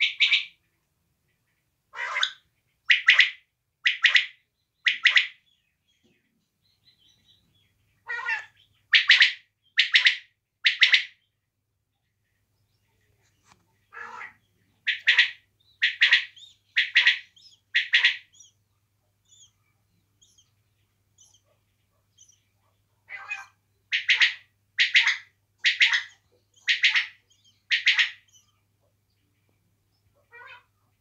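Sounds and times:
quail calling: 0:00.0 - 0:00.7, 0:01.9 - 0:05.4, 0:08.0 - 0:11.3, 0:13.4 - 0:18.6, 0:21.2 - 0:28.6, 0:30.2 - 0:30.8.

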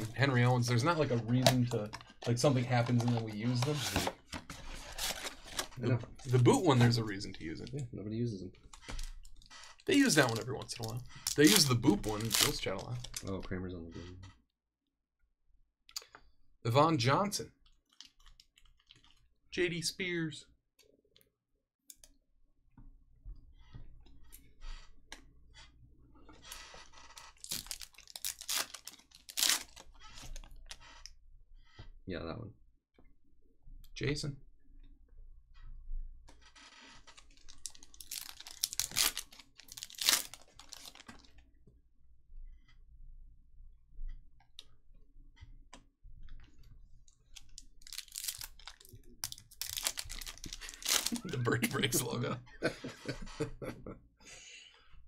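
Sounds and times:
foil wrapper tearing: 0:09.9 - 0:13.2, 0:27.2 - 0:30.3, 0:37.1 - 0:41.3, 0:47.5 - 0:51.4.

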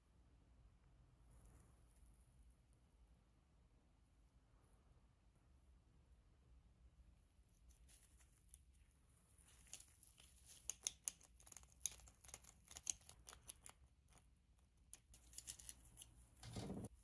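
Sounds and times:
plastic part scraping: 0:15.4 - 0:16.9.

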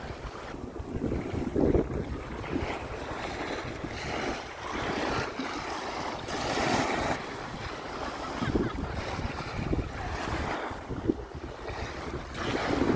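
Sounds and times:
small waves washing on shore: 0:00.0 - 0:12.9
wind rumbling on microphone: 0:00.0 - 0:12.9.

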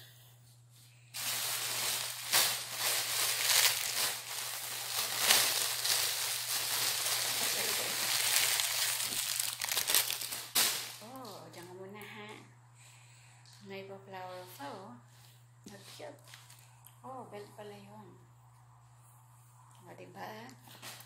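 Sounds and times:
plastic bag crinkling: 0:01.2 - 0:11.5.

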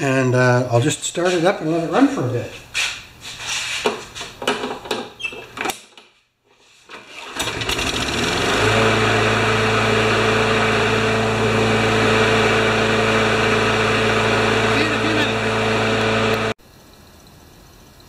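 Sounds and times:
handling knocks and clicks: 0:03.8 - 0:06.1
lawn mower engine starting: 0:06.9 - 0:16.6.

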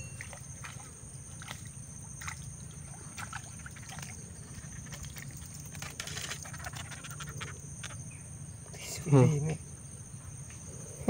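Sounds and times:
fish splashing at water surface: 0:00.0 - 0:07.5
small ticks: 0:03.6 - 0:08.1.

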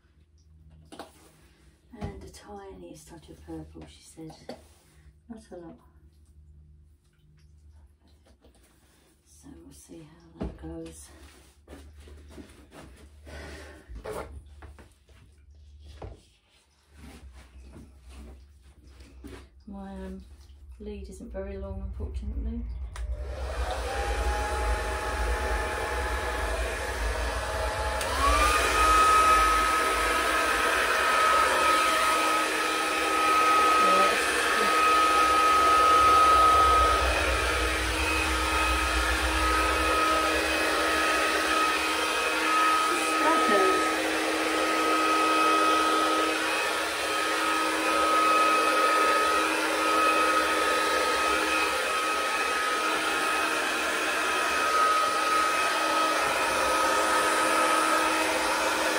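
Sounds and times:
hair dryer blowing: 0:22.7 - 0:58.9.

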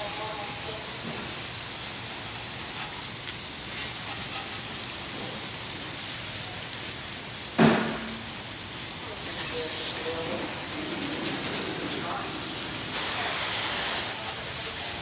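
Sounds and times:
water spray hissing on metal: 0:00.0 - 0:15.0
brief thump: 0:07.6 - 0:08.2.

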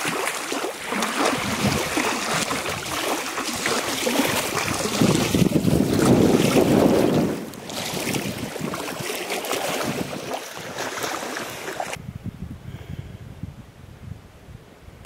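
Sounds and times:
small waves washing ashore: 0:00.0 - 0:12.0
wind buffeting microphone: 0:00.8 - 0:15.0.

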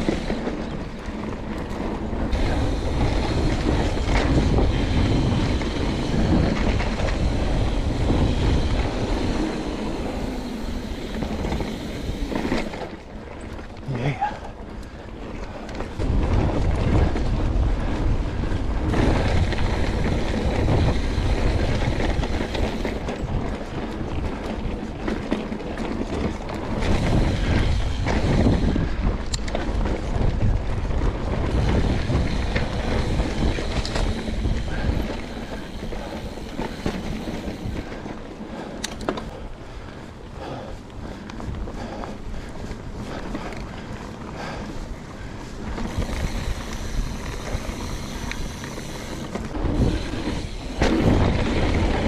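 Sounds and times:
bike tyre rumble: 0:00.0 - 0:52.0
wind buffeting microphone: 0:00.0 - 0:52.0
bike knocks and rattles: 0:45.7 - 0:52.0.

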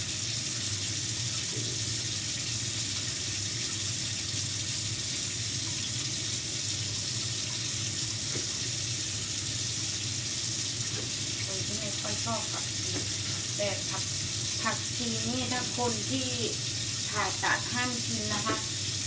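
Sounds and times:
tap running into sink: 0:07.5 - 0:08.8, 0:10.8 - 0:14.8, 0:17.9 - 0:18.9.

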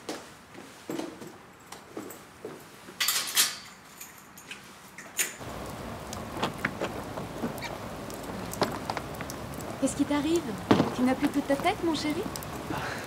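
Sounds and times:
drops ticking: 0:05.4 - 0:13.0
steady rain: 0:05.4 - 0:13.0.

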